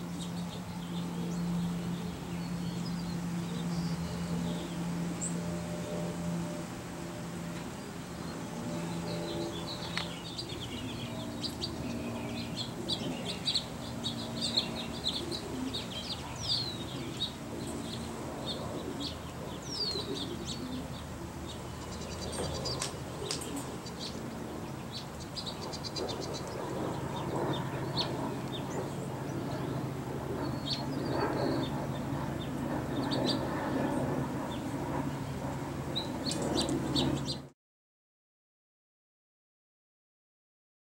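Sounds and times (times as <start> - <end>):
steady low hum: 0.0 - 37.5
small songbirds chirping: 8.2 - 37.5.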